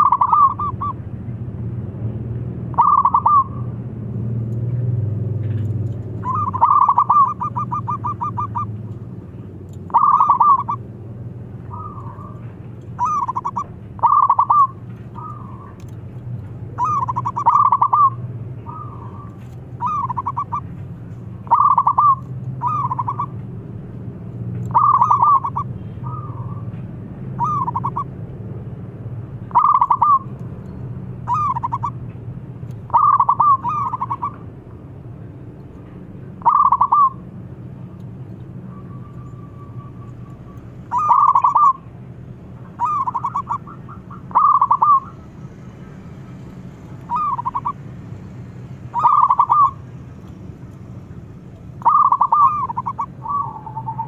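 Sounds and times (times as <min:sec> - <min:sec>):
dove cooing in trilled bursts: 0:00.0 - 0:00.9, 0:02.7 - 0:03.6, 0:06.2 - 0:08.7, 0:09.9 - 0:10.8, 0:11.7 - 0:15.8, 0:16.8 - 0:20.7, 0:21.4 - 0:23.3, 0:24.7 - 0:26.6, 0:27.4 - 0:28.0, 0:29.5 - 0:30.2, 0:31.3 - 0:32.0, 0:32.9 - 0:34.4, 0:36.4 - 0:37.2, 0:40.9 - 0:41.9, 0:42.7 - 0:45.2, 0:47.1 - 0:47.8, 0:48.9 - 0:49.8, 0:51.8 - 0:54.0.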